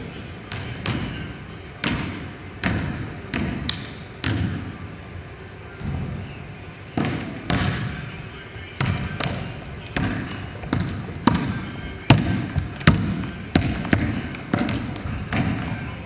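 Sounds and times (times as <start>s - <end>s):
basketball bouncing on wood floor: 10.0s - 15.6s.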